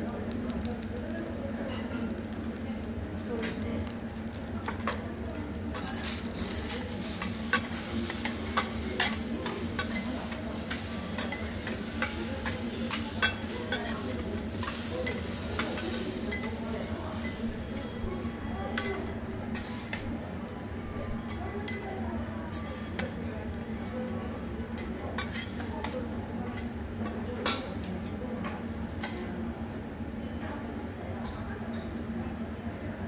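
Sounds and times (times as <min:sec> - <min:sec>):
food sizzling on a griddle: 0:00.0 - 0:28.2
metal spatulas scraping and tapping: 0:05.7 - 0:18.0, 0:18.7 - 0:20.1, 0:22.5 - 0:23.2, 0:23.8 - 0:29.3.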